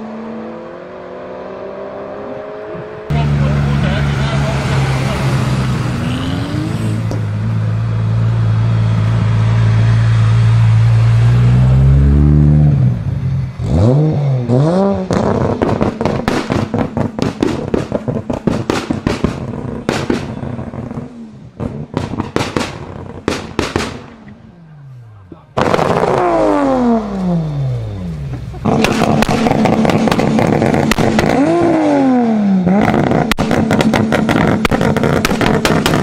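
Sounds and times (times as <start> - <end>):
loud engine with falling pitch: 0.0 - 17.1, 25.6 - 36.0
car engine revving: 0.0 - 36.0
exhaust pops and bangs: 15.1 - 24.4, 25.6 - 26.6, 28.6 - 31.9, 32.7 - 36.0.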